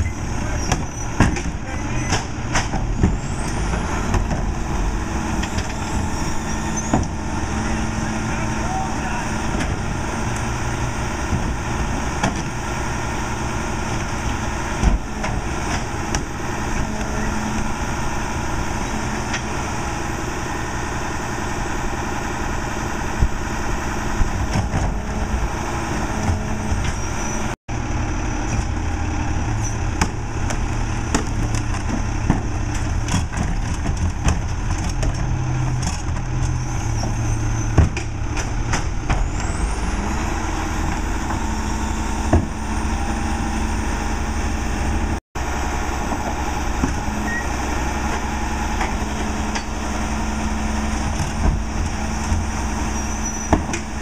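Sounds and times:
knocks and clunks of carts tipped: 0.0 - 17.8, 24.1 - 27.6, 28.3 - 43.3, 46.0 - 54.0
diesel engine idling: 38.1 - 54.0.

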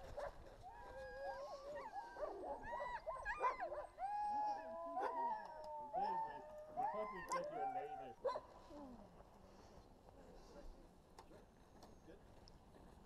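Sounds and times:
dogs howling and whining: 0.7 - 7.9
dogs barking and yipping: 1.2 - 4.0.

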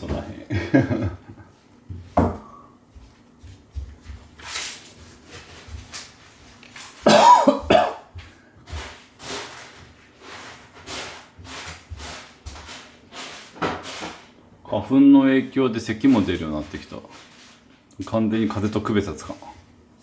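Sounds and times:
person coughing: 7.0 - 8.1.

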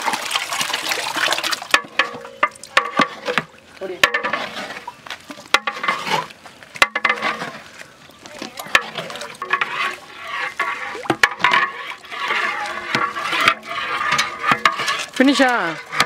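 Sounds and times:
liquid sloshing in pot: 0.0 - 16.0
paddle knocking on metal pot: 1.7 - 4.4, 5.5 - 5.9, 6.8 - 7.4, 11.0 - 16.0.

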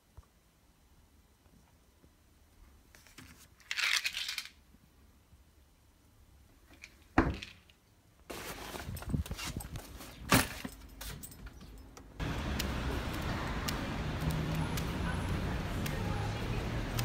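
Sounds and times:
bag rustling and clinking: 8.3 - 11.9
street noise: 8.4 - 17.0.

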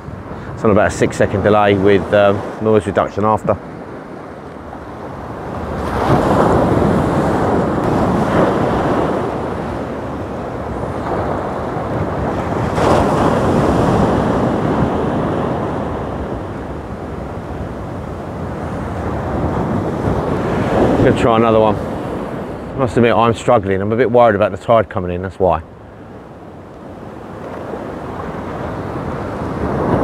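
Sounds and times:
wind buffeting microphone: 0.0 - 24.3, 25.6 - 30.0
sea waves breaking on shore: 0.0 - 30.0.

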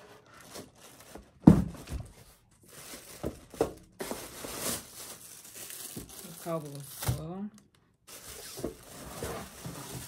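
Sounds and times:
cardboard box thump: 1.4 - 2.1
plastic crinkling: 2.5 - 7.4, 8.1 - 10.0
cardboard scraping and rubbing: 8.3 - 10.0.

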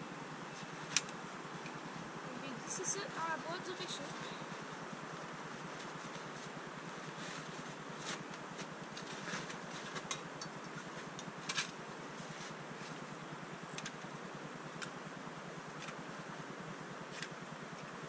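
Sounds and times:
light clicks and rustles: 5.2 - 13.1.

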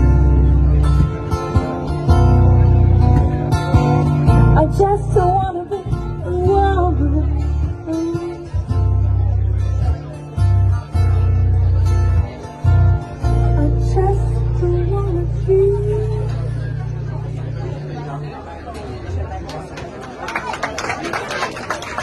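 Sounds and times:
acoustic guitar strumming: 0.0 - 18.9
electric bass guitar: 0.0 - 19.7
woman singing: 4.5 - 8.7, 13.5 - 16.5.

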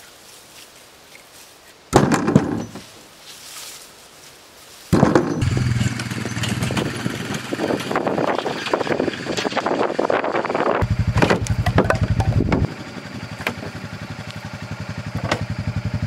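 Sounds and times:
small petrol engine running: 5.3 - 16.0.

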